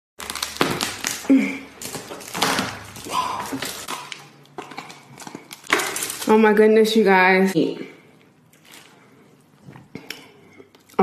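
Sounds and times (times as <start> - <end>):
lobster shell cracking: 0.2 - 6.3.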